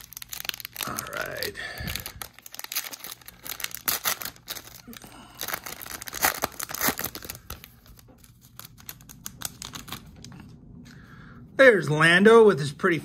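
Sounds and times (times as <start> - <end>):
foil wrapper tearing and crinkling: 0.0 - 10.3.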